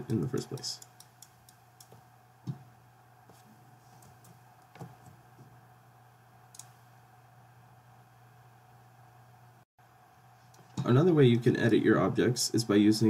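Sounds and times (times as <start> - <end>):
computer mouse clicks: 0.0 - 2.0, 6.5 - 6.8
steady low hum: 0.0 - 13.0.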